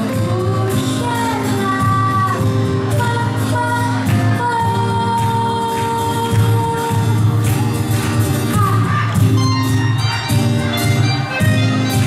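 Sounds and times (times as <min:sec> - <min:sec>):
woman singing: 0:00.0 - 0:07.3, 0:08.5 - 0:09.3
acoustic guitar: 0:00.0 - 0:12.0
keyboard: 0:00.0 - 0:12.0
violin: 0:09.4 - 0:12.0.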